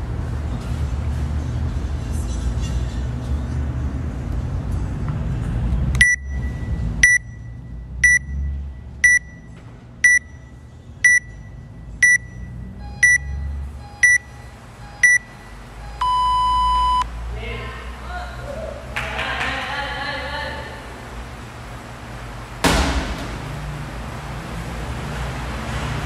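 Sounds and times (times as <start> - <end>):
countdown timer beeping: 6.0 - 10.4, 11.0 - 17.0.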